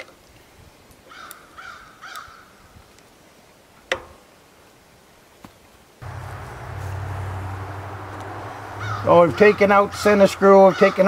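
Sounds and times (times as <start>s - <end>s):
crow cawing: 1.1s - 2.5s, 6.1s - 11.0s.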